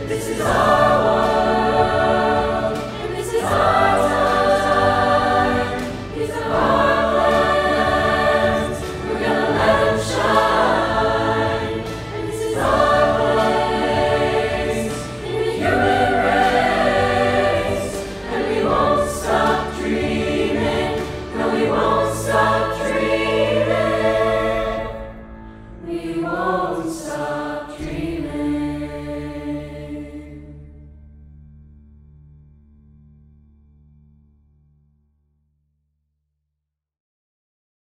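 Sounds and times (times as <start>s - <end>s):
choir singing in harmony: 0.0s - 30.7s.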